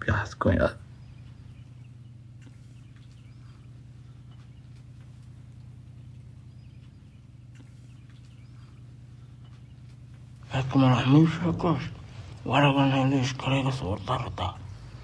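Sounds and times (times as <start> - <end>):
steady low hum: 0.0 - 15.0
faint bird chirps: 0.4 - 12.3.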